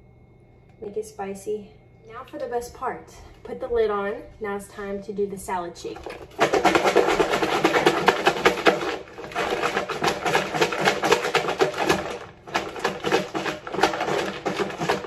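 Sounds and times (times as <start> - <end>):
salad rattling in plastic bowl: 6.0 - 15.0.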